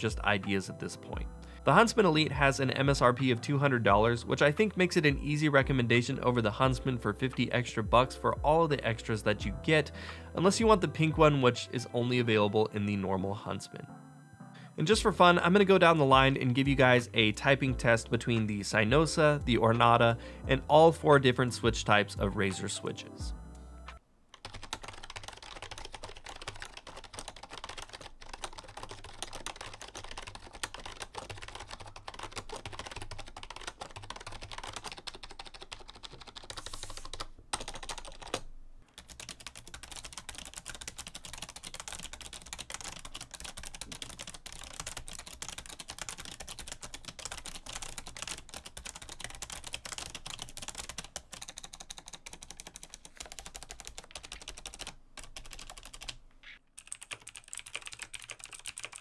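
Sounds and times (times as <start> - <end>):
fast keyboard typing: 24.4 - 59.0.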